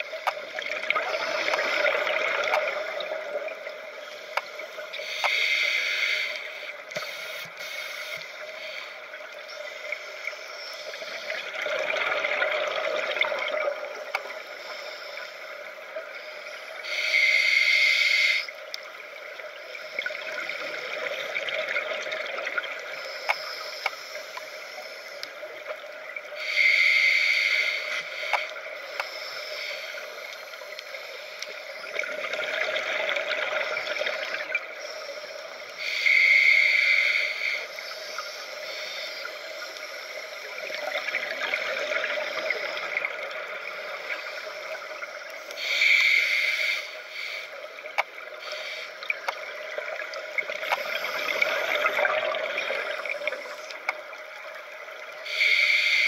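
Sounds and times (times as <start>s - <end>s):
faint clicks: 0.0s - 56.0s
regulator inhaling hiss: 1.1s - 11.4s, 14.3s - 18.9s, 22.9s - 25.6s, 26.3s - 32.0s, 34.8s - 53.9s, 55.0s - 56.0s.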